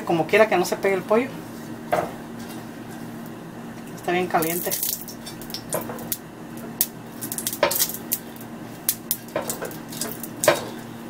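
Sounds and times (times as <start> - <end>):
steady low hum: 0.0 - 11.0
brush knocking on grill pan: 9.2 - 10.8.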